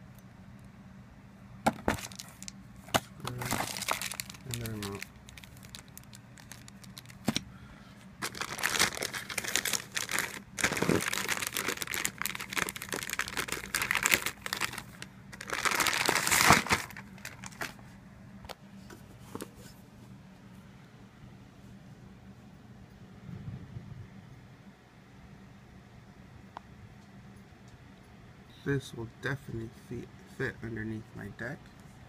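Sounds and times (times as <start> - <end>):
plastic wrapping crinkling: 1.8 - 2.6, 3.2 - 7.4, 8.2 - 17.8.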